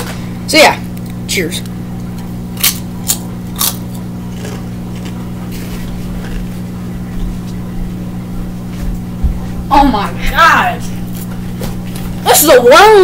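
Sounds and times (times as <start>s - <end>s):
steady low hum: 0.0s - 13.0s
potato chips crunching: 2.5s - 6.6s.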